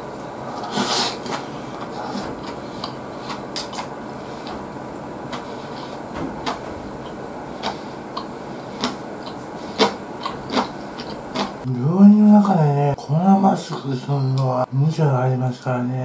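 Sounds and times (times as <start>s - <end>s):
background hiss: 0.0s - 16.0s
man chewing lettuce: 0.2s - 11.7s.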